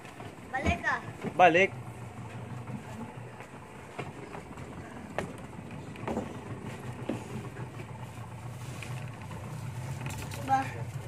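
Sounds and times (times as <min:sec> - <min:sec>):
knocks and bumps in boat: 0:00.0 - 0:08.0
low steady hum: 0:00.0 - 0:11.0.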